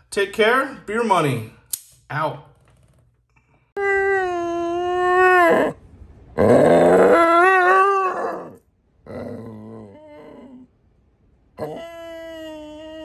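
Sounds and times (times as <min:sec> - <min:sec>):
dog howling: 0:03.8 - 0:05.8, 0:06.4 - 0:10.7, 0:11.6 - 0:13.0.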